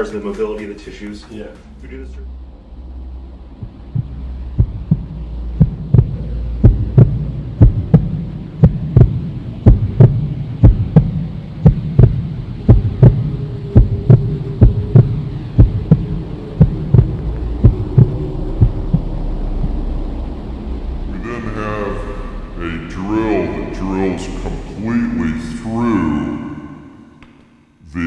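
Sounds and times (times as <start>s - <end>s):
low steady hum: 0.0s - 28.0s
heartbeat double thump: 3.6s - 20.0s
high held tone: 3.6s - 27.2s.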